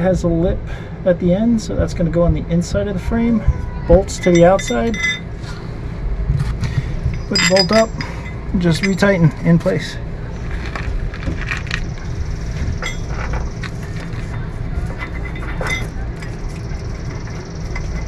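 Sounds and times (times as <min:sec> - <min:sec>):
steady low rumble: 0:00.0 - 0:18.0
metal clinks of bolts and wrench: 0:04.1 - 0:05.3, 0:07.1 - 0:09.8, 0:12.8 - 0:13.4, 0:15.0 - 0:16.4.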